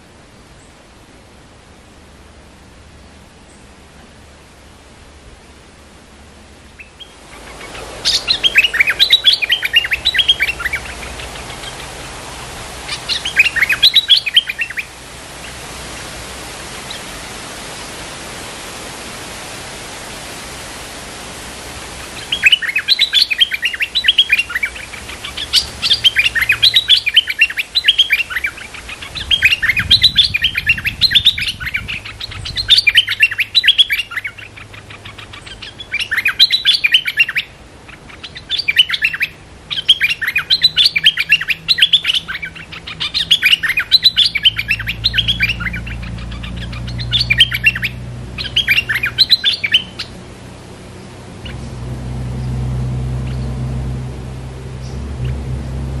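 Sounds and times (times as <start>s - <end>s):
bulbul singing: 6.6s - 16.1s, 22.0s - 55.8s
low rumble: 50.8s - 56.0s.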